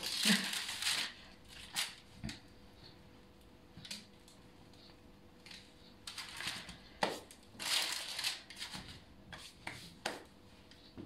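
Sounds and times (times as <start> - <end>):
baking paper crinkling: 0.0 - 2.3, 5.4 - 10.3.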